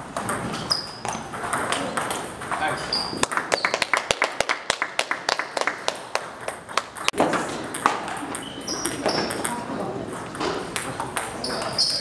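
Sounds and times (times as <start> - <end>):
ping-pong ball clicks: 6.4 - 11.7.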